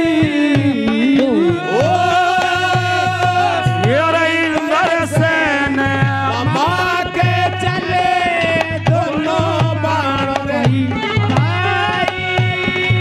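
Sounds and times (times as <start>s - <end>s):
hand drum beat: 0.0s - 13.0s
person singing verses: 0.0s - 13.0s.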